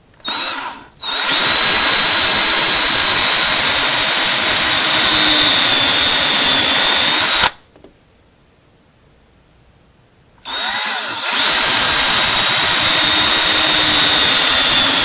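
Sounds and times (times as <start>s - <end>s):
cordless drill whining: 0.2s - 7.6s, 10.4s - 15.0s.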